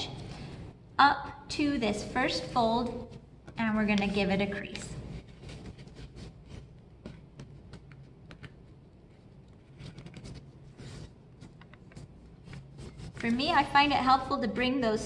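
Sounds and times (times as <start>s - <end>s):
paper being folded and creased: 5.0s - 13.7s.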